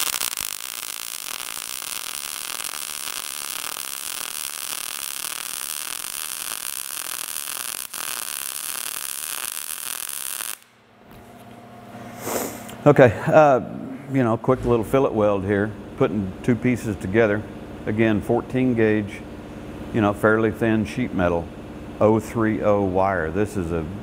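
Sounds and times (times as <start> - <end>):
welding arc crackling: 0.0 - 10.8.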